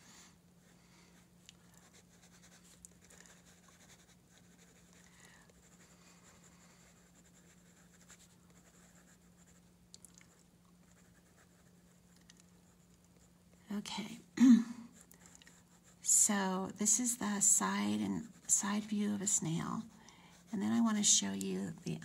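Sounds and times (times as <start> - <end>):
pencil scratching on paper: 1.7 - 9.6, 10.8 - 13.3, 17.3 - 22.0.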